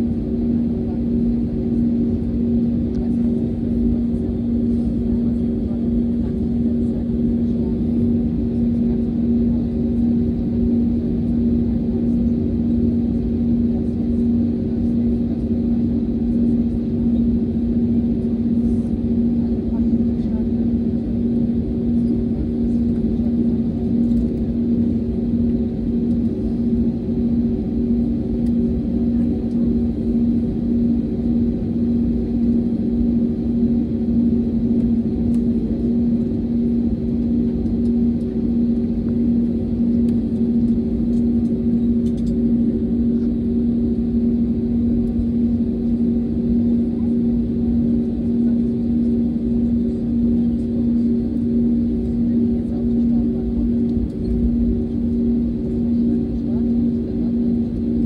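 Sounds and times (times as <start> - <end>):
airplane cabin drone: 0.0 - 58.0.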